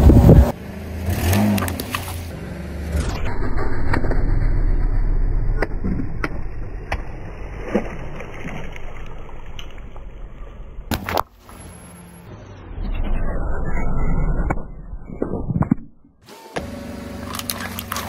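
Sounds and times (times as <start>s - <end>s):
car low rumble: 0.0s - 18.0s
water balloons bursting and splashing: 5.5s - 10.1s, 17.2s - 18.0s.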